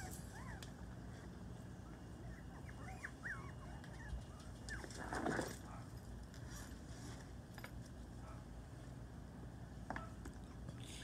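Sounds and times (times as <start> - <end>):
puppies whimpering: 0.0 - 0.7, 2.2 - 5.0.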